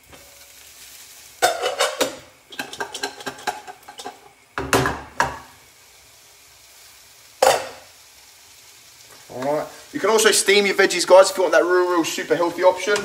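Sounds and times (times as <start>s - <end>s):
faint sizzle: 0.0s - 13.0s
pan and lid rattling: 1.4s - 5.3s
pan knocking on gas hob: 1.4s - 5.5s.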